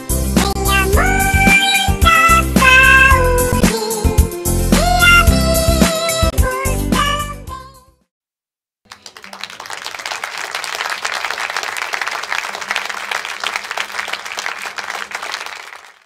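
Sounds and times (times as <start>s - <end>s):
crowd applauding: 8.9s - 16.0s.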